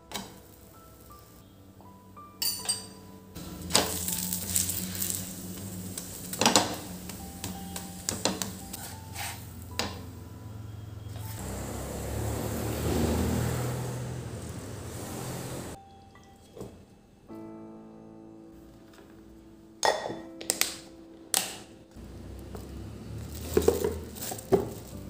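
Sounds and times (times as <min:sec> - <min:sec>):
flatbread sizzling on a pan: 0:03.4 - 0:09.7.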